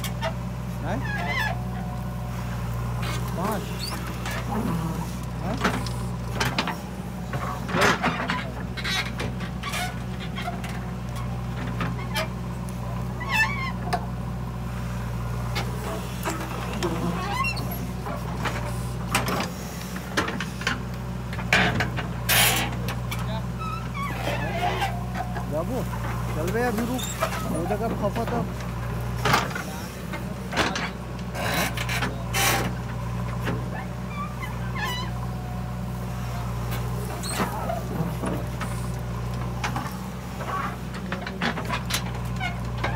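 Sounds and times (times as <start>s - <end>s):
backhoe diesel engine running: 0.0s - 42.9s
short high squeaks: 23.6s - 25.4s.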